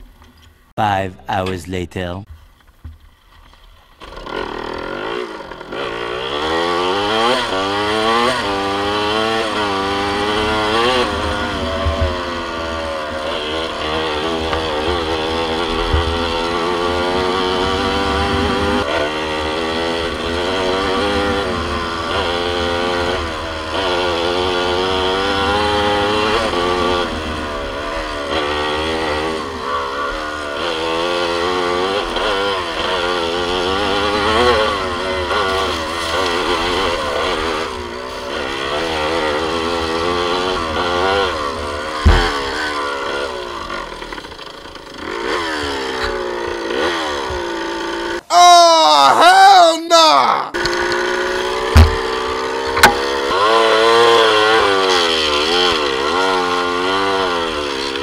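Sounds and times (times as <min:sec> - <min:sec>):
dirt bike engine revving: 0:04.0 - 0:48.3, 0:50.6 - 0:58.0
sharp knock: 0:42.0 - 0:42.6, 0:51.8 - 0:52.1, 0:52.8 - 0:53.1.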